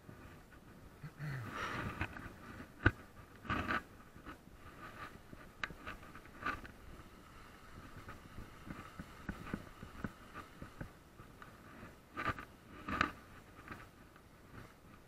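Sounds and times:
bike rattles and knocks: 1.8s - 15.0s.

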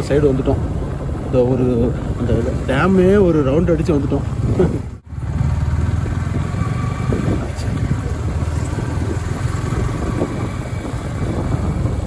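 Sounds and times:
motorcycle engine rumble: 0.0s - 12.0s.

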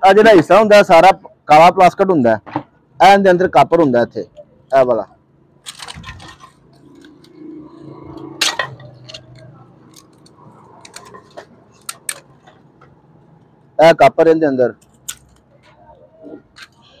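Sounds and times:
plastic and metal clicks and rattles: 5.6s - 7.3s, 8.4s - 12.9s.

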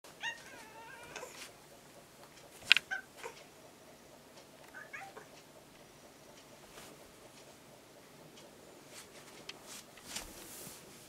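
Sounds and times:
cat chirping: 0.2s - 1.4s, 2.8s - 3.4s, 4.7s - 5.3s
cat meowing: 0.2s - 1.4s, 4.8s - 5.2s.

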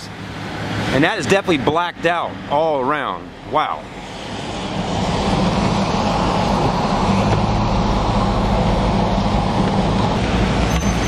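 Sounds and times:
tyres hissing on wet pavement: 3.7s - 10.8s.

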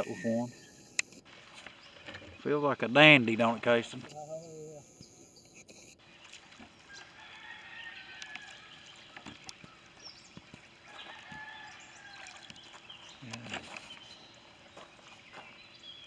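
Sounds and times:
faint bird calls: 4.0s - 16.0s.

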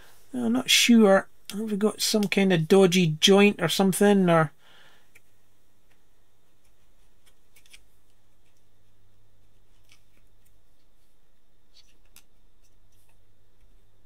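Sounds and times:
small clicks and scrapes of plug: 7.2s - 7.8s.

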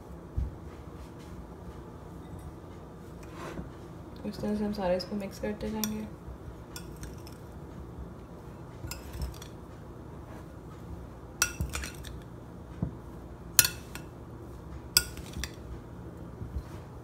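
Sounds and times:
spoon clinking against glass: 6.8s - 7.4s, 8.8s - 9.5s, 11.4s - 12.1s, 13.6s - 14.0s, 15.0s - 15.6s
spoon scraping in bowl: 6.8s - 7.4s, 8.8s - 9.6s, 15.0s - 15.6s.

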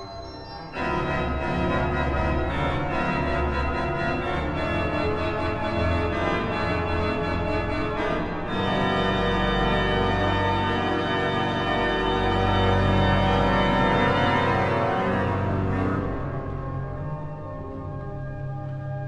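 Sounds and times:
soundtrack music sustained chords: 0.1s - 19.0s.

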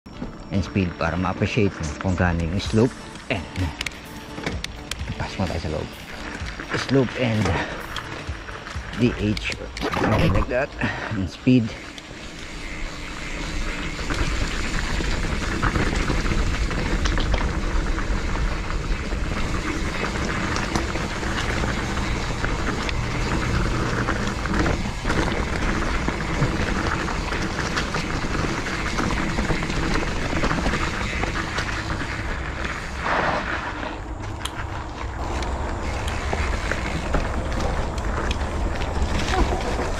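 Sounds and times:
bike tyres on dirt trail: 0.0s - 39.9s
background music: 0.4s - 12.2s.

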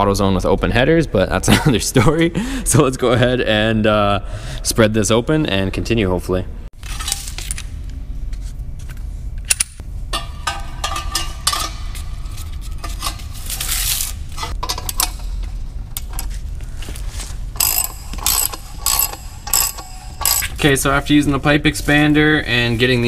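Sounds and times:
metallic clinks of tool on pipe: 9.5s - 11.9s, 17.6s - 20.6s
ratchet wrench clicking: 17.6s - 20.7s.

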